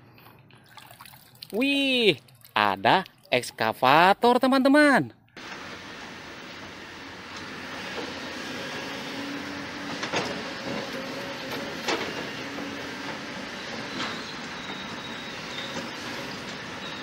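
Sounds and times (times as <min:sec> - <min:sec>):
excavator diesel engine running: 0:05.4 - 0:17.0.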